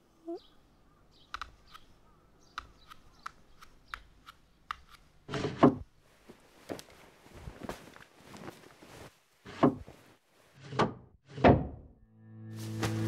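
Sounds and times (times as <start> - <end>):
bare feet on wooden floorboards: 4.7 - 10.2
fabric rustling: 6.0 - 10.6
cloth swish: 12.6 - 13.0.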